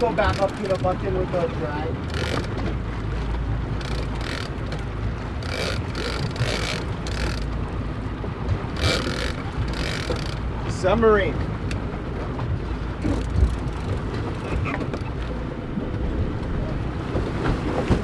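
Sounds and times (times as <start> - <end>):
boat engine hum: 0.0 - 18.0.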